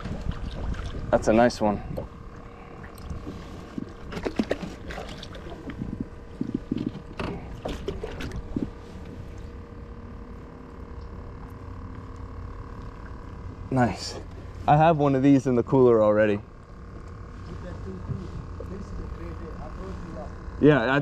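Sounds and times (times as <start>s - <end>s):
water splashing: 0.0s - 1.5s, 2.3s - 8.8s
steady hum: 0.0s - 21.0s.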